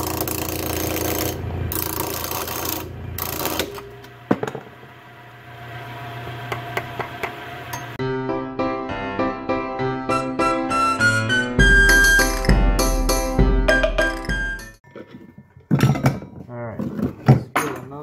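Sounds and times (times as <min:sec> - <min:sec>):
tool scraping spinning wood: 0:00.0 - 0:04.6
lathe motor hum: 0:00.0 - 0:08.0.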